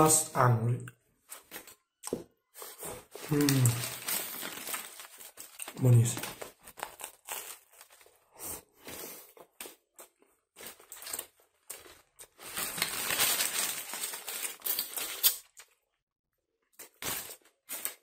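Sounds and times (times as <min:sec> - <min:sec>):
foil wrapper crinkling: 0:03.1 - 0:08.2, 0:10.6 - 0:15.8, 0:16.8 - 0:18.0.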